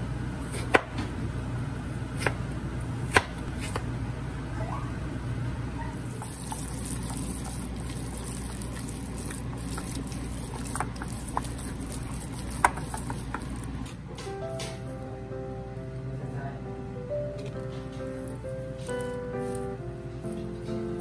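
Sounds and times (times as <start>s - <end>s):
steady low hum: 0.0s - 21.0s
hands kneading ground meat: 6.1s - 13.9s.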